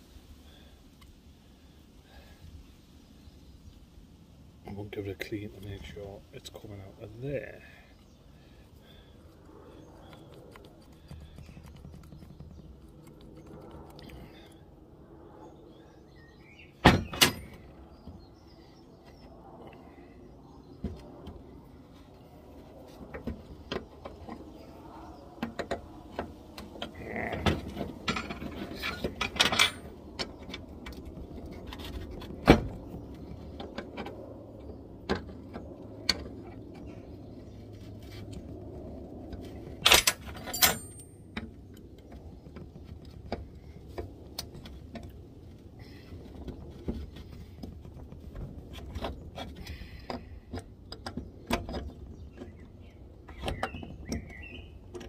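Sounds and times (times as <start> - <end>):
metal tools clinking: 28.0 - 30.0, 39.9 - 41.2.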